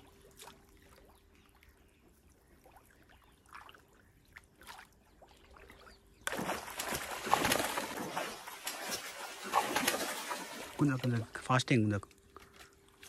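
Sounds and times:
water splashing loudly: 6.3s - 11.1s.

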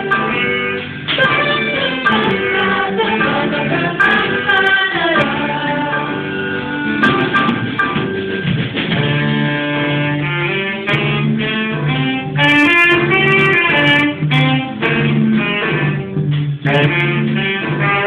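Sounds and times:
saxophone: 0.0s - 7.8s, 8.9s - 18.0s
live band playing: 0.0s - 18.0s
steady bass line: 0.0s - 18.0s.

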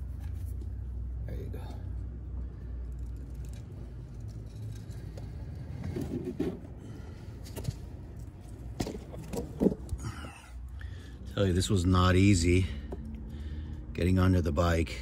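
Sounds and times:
small metal clicks and scrapes: 2.6s - 5.6s.

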